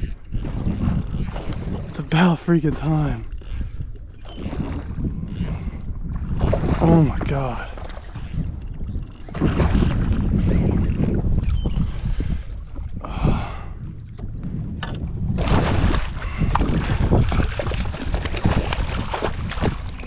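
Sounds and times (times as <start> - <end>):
wind buffeting microphone: 0.0 - 20.0
small splashes and knocks: 14.8 - 20.0.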